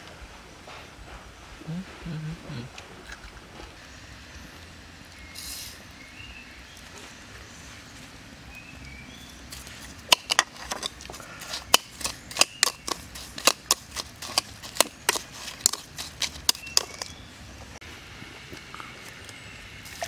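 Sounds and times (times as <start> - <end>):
spoon scraping plastic bowl: 10.5 - 17.2.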